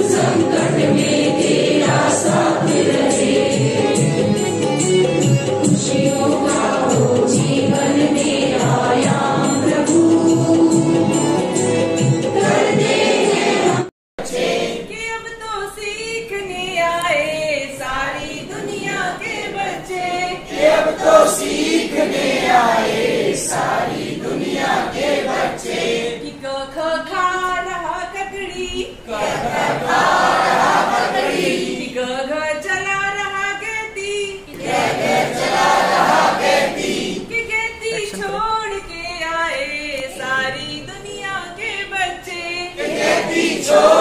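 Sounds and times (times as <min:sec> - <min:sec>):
group singing a prayer song: 0:00.0 - 0:04.8, 0:05.6 - 0:15.0, 0:17.3 - 0:26.4, 0:28.9 - 0:32.2, 0:34.4 - 0:38.5, 0:42.6 - 0:44.0.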